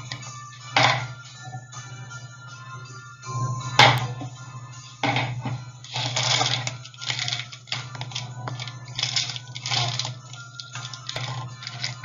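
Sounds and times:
rustling and crinkling packaging: 5.9 - 12.0.

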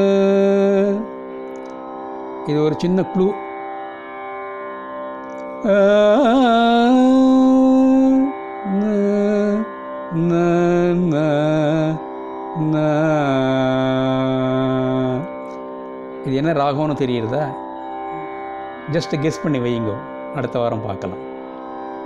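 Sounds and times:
man singing: 0.0 - 1.2, 5.6 - 15.4.

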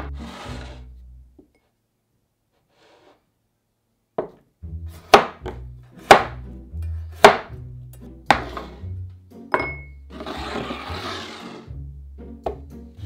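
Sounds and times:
knife chopping on wooden board: 5.0 - 6.5, 7.1 - 7.6, 8.3 - 8.8
glassy clink: 9.5 - 10.0
pieces sliding into glass bowl: 10.1 - 11.7.

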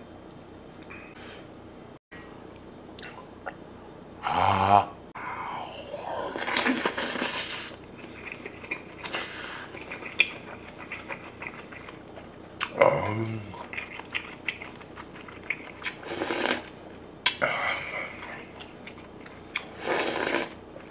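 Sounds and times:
person humming: 4.2 - 7.2, 12.7 - 13.6
loud slurp: 6.3 - 12.0, 15.9 - 16.7, 19.6 - 20.6
wet chewing with lip smacks: 7.8 - 12.7, 13.6 - 16.0, 18.2 - 19.7.

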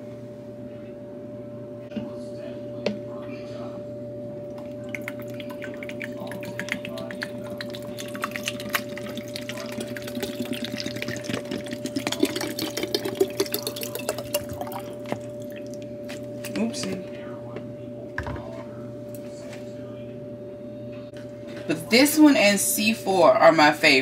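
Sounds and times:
water sloshing and dripping: 4.6 - 15.8.

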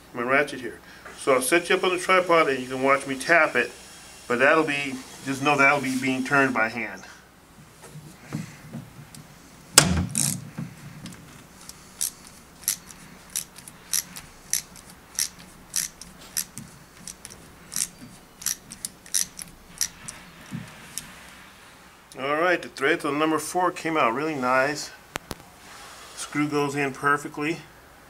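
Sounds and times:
loud knock: 9.8 - 10.7
hand ratchet clicking: 10.1 - 10.4, 11.6 - 21.1.

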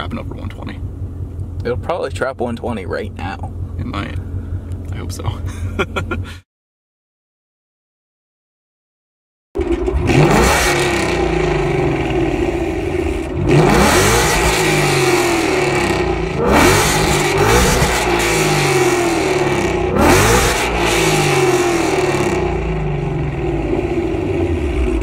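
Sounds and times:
car engine revving: 9.6 - 25.0.

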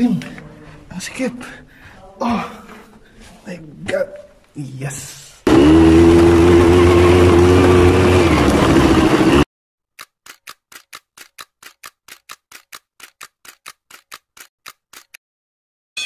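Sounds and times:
atv engine running at high revs: 5.5 - 9.4.

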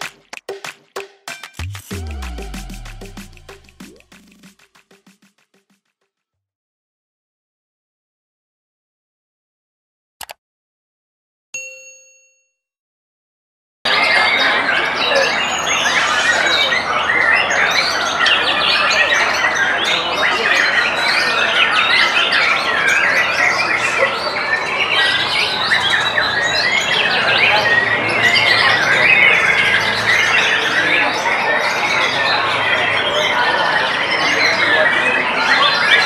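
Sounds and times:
songbirds chorus: 14.0 - 36.0.

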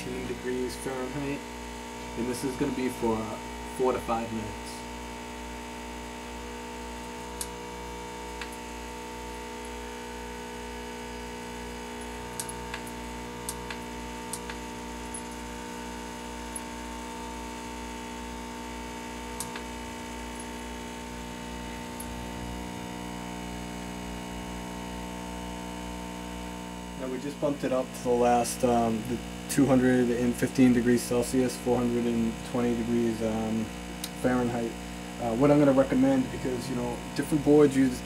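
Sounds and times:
hot air station humming: 0.0 - 5.3, 18.4 - 38.0.

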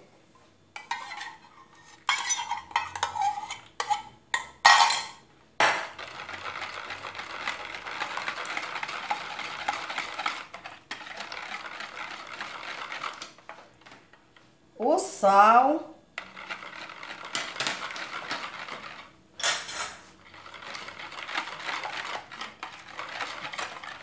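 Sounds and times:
whisk beating batter in a bowl: 0.8 - 4.2, 5.9 - 14.2, 16.2 - 24.0
utensils clinking against bowl: 2.0 - 5.2, 17.3 - 20.0.

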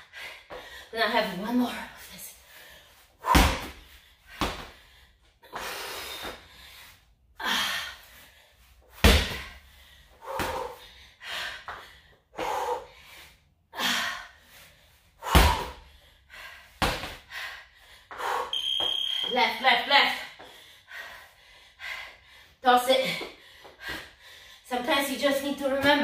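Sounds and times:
hard breathing: 2.0 - 18.5, 20.2 - 24.7
slam ball thudding on rubber floor: 3.3 - 3.8, 9.0 - 9.5.

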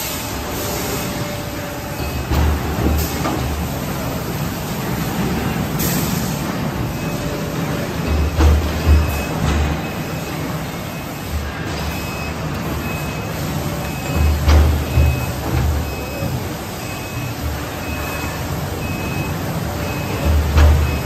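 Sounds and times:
hydraulic press humming: 0.0 - 21.0
short high warning beeps: 6.9 - 21.0.

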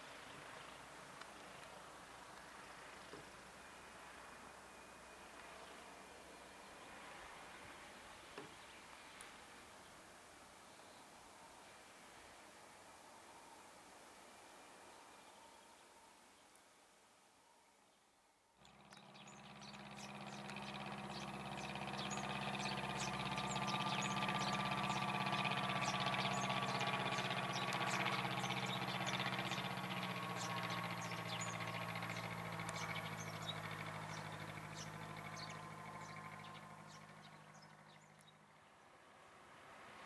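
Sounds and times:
light aircraft flying overhead: 0.0 - 16.2, 18.6 - 40.0
birds chirping: 18.6 - 38.6.

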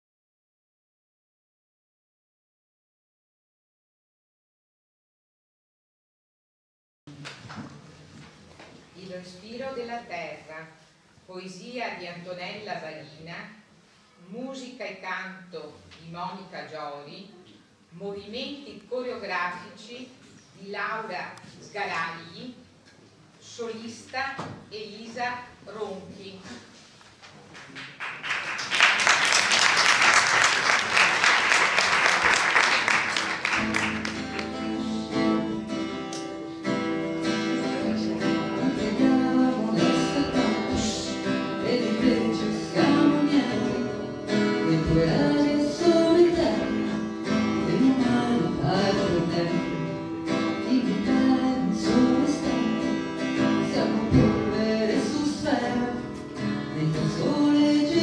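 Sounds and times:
audience applause: 27.6 - 34.7
acoustic guitar: 30.5 - 58.0
woman singing: 37.3 - 56.1, 56.7 - 58.0.

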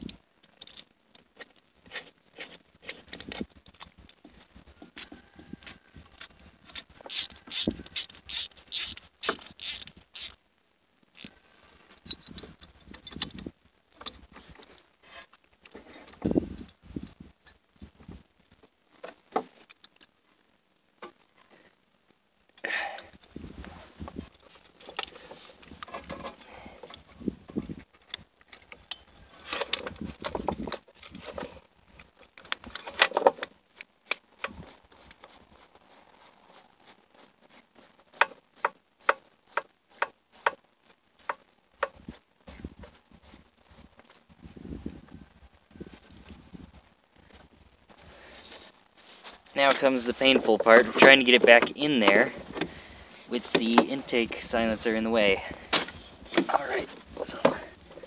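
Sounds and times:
handling metal carburetor body: 7.1 - 10.4
screwdriver clicking on metal screws: 7.1 - 10.4.

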